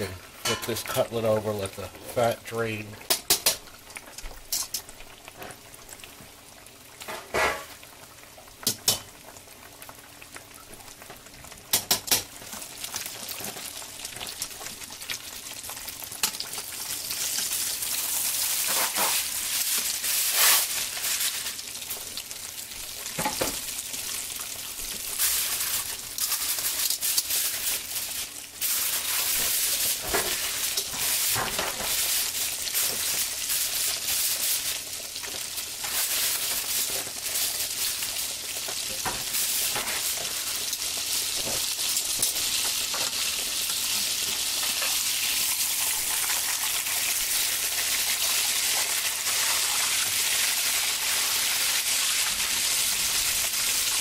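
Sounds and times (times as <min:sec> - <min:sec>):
cutlet sizzling in hot oil: 0:00.0 - 0:54.0
metal tongs clicking on pan: 0:08.6 - 0:09.1.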